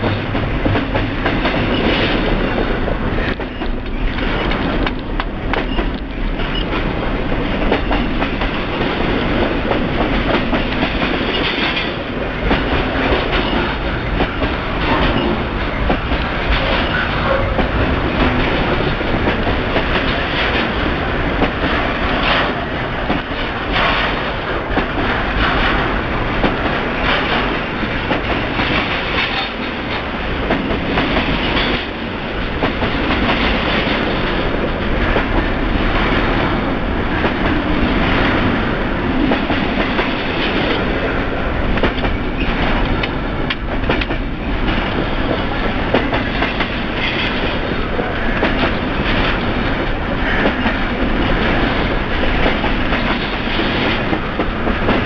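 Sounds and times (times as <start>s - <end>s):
train rumbling past: 0.0s - 55.0s
wheels clacking over rail joints: 0.0s - 55.0s.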